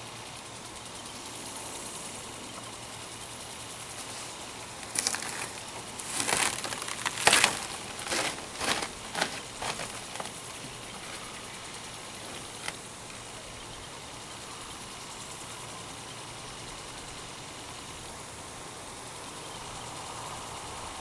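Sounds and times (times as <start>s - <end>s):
background hiss: 0.0s - 21.0s
rustling and crackling: 3.9s - 12.9s.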